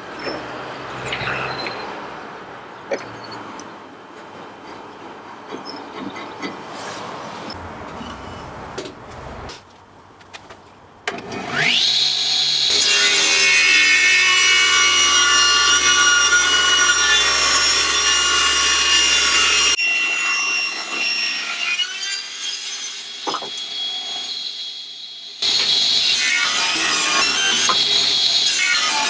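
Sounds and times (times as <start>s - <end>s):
table saw blade whining: 11.4s - 29.0s.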